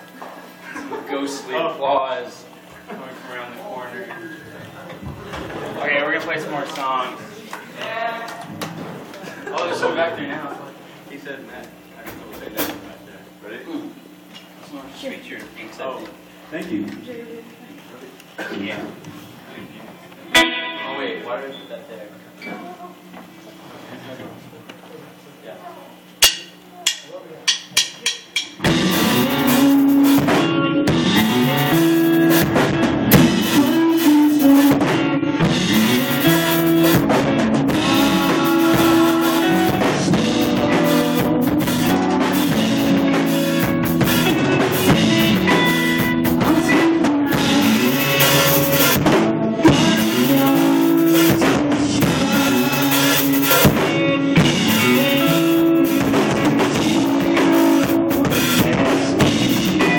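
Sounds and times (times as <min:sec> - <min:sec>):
electric guitar: 0:20.1 - 0:21.0, 0:28.6 - 0:59.9
drum kit: 0:26.2 - 0:59.9.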